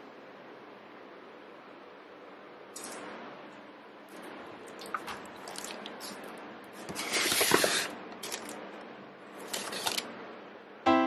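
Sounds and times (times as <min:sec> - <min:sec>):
paper and plastic rustling: 0:05.0 - 0:08.6, 0:09.4 - 0:10.1.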